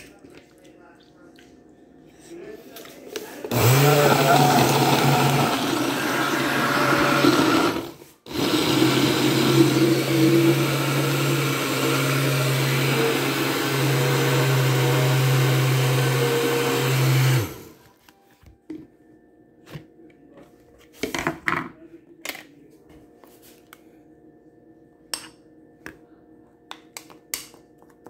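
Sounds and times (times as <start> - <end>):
blender motor running: 3.4 - 17.8.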